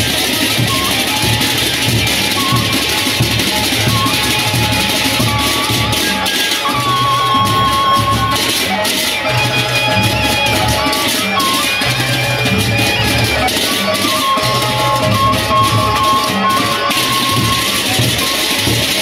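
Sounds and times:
big drums beating: 0.0 - 19.0
hand cymbals clashing: 0.0 - 19.0
wavering melody line: 0.0 - 19.0.

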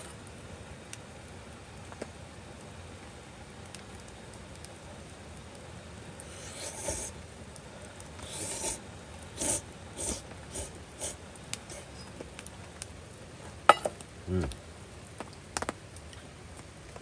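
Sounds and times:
person slurping noodles: 6.2 - 7.2, 8.2 - 8.8, 9.4 - 11.9.

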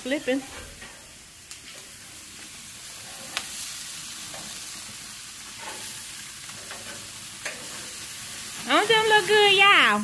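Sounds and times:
meat sizzling on a grill: 0.0 - 10.0.

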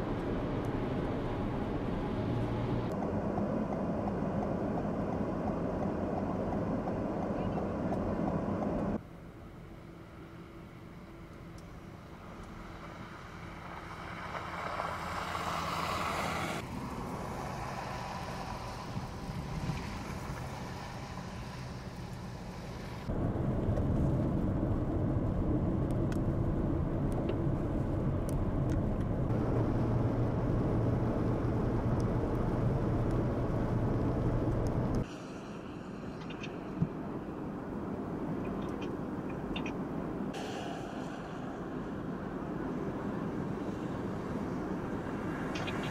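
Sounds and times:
vehicle engine noise: 0.0 - 45.9
vehicle passing close: 12.6 - 23.1
tyres hissing through snow: 17.3 - 23.1
low rumble: 23.0 - 37.4, 40.3 - 43.9.

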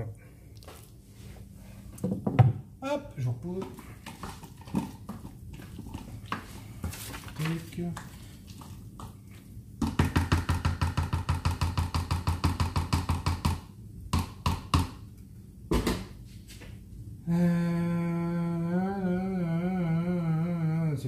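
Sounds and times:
man humming: 17.2 - 21.0.

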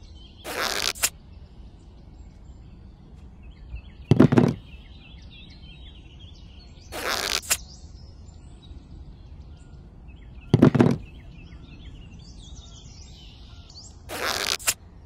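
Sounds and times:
birds chirping faintly: 0.0 - 15.0
swish in sand with click: 0.5 - 1.2, 7.0 - 7.6, 14.1 - 14.8
thud in plastic toy trailer: 4.1 - 4.6, 10.6 - 11.1.

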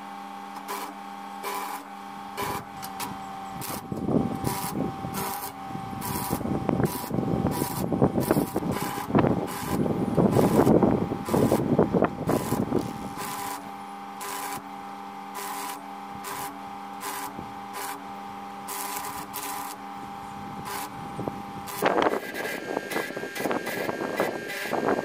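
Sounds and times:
welding arc crackling: 0.6 - 25.0
steady hum with faint ticks: 12.2 - 13.6.

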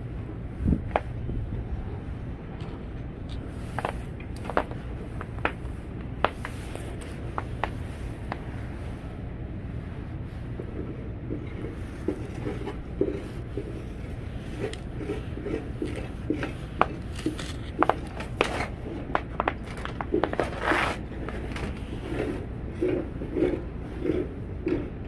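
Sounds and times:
steady low rumble: 0.0 - 25.0
wooden pole scraping through snow: 20.2 - 24.3.

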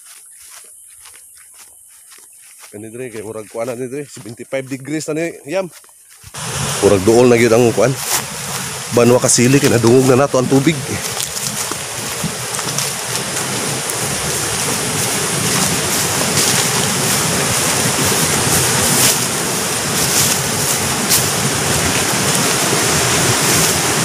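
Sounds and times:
fast-flowing water rushing: 6.3 - 24.0.

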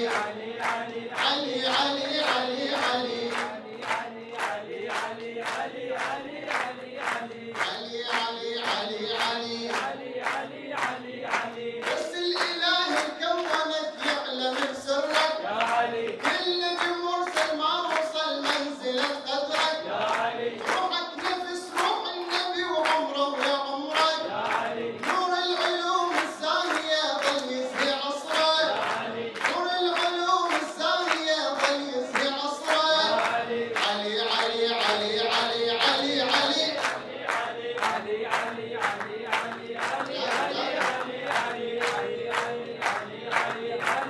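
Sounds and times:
man singing into a microphone: 0.0 - 4.4, 6.0 - 10.0, 11.8 - 37.1
rhythmic hand-clapping: 0.0 - 44.0.

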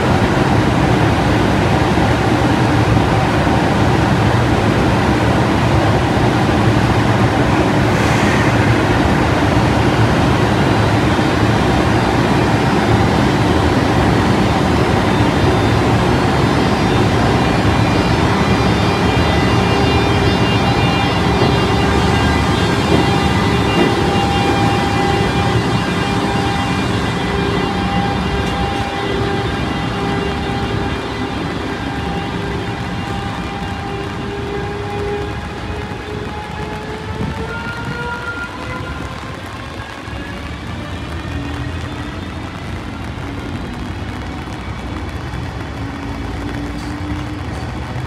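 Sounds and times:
locomotive cooling blowers: 7.8 - 34.6.

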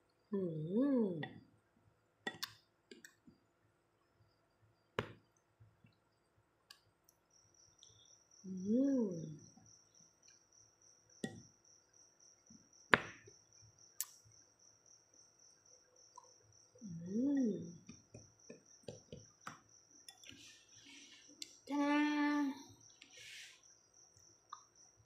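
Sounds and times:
cricket chirping: 0.0 - 25.0
person humming: 16.9 - 17.8.

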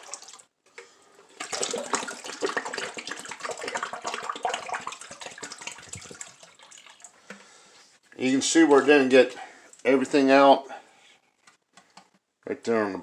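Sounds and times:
water sloshing in a sink: 0.0 - 0.5, 1.2 - 7.6.

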